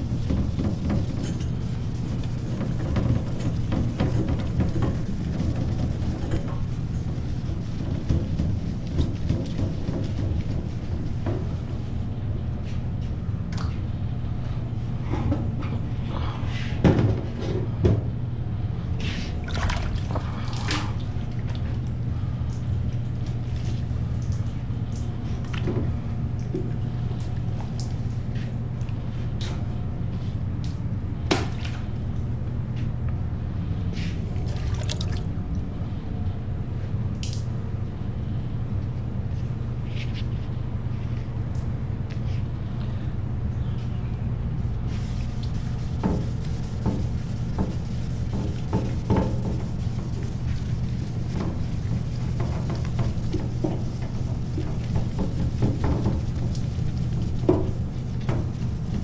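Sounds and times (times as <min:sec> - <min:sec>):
splashing and rubbing: 0:00.0 - 0:12.1, 0:19.1 - 0:21.7, 0:34.0 - 0:35.3, 0:44.8 - 0:59.0
steady low hum: 0:00.0 - 0:59.0
water dripping and trickling: 0:19.5 - 0:28.2, 0:34.3 - 0:35.3, 0:51.2 - 0:59.0.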